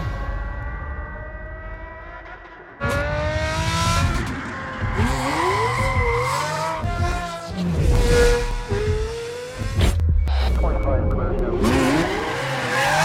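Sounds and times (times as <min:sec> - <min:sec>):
sports car engine revving: 0:00.8 - 0:09.8.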